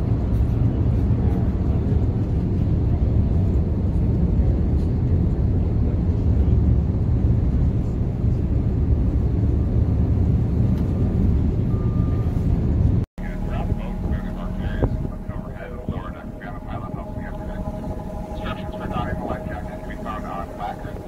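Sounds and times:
wind noise: 0:00.0 - 0:21.0
ferry engines rumbling: 0:10.7 - 0:21.0.

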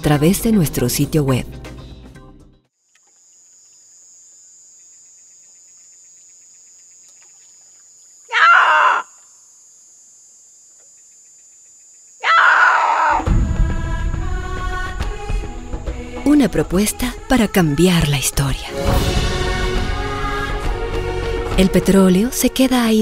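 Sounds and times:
man shouting long calls: 0:08.3 - 0:09.2.

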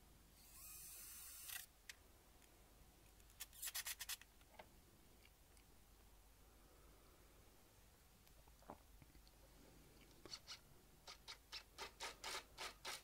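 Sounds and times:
cordless drill driving screw: 0:00.4 - 0:01.7.

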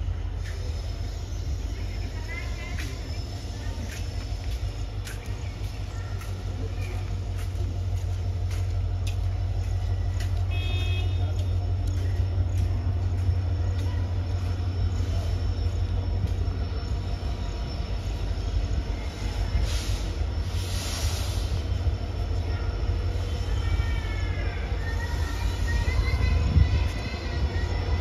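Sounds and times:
train approaching with low rumble: 0:00.0 - 0:28.0
hiss: 0:19.2 - 0:22.0.

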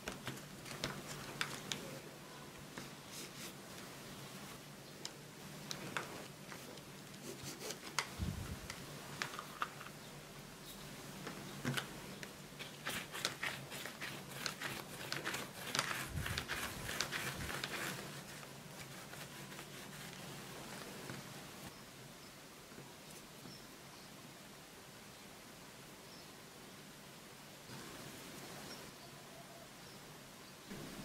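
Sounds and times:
hands rolling dough: 0:11.2 - 0:21.4.

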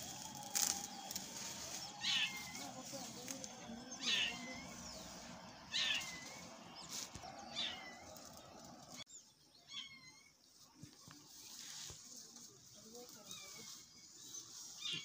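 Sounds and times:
high-pitched animal calls: 0:00.0 - 0:06.5, 0:07.4 - 0:08.4
faint outdoor background: 0:00.0 - 0:15.0.

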